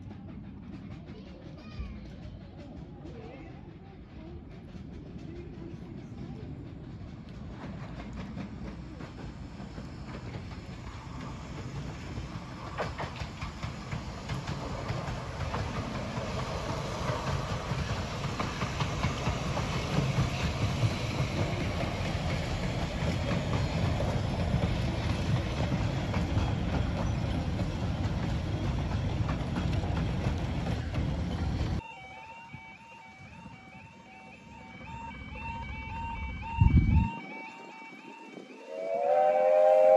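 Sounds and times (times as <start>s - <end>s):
wheels clicking over rail joints: 0.0s - 31.9s
train wheels rumbling: 0.0s - 39.9s.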